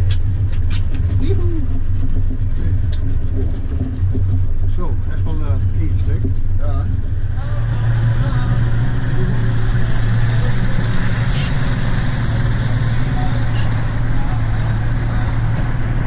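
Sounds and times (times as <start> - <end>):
motorboat engine humming: 0.0 - 16.0
faint voices: 6.7 - 16.0.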